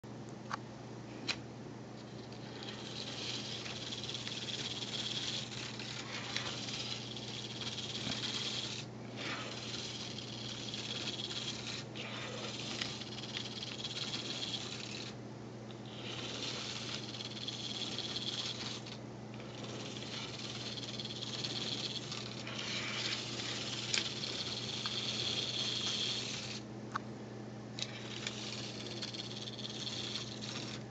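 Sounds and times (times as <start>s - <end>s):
steady low hum: 0.0s - 30.9s
model bus motors whirring: 2.3s - 15.2s, 15.8s - 26.6s, 27.8s - 30.9s.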